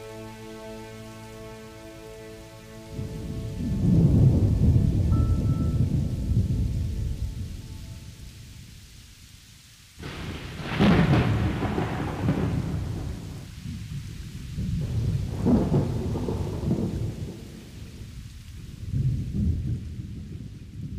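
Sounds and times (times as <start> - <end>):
rain: 0.0 - 20.9
rolling thunder: 2.9 - 8.8, 10.0 - 20.9.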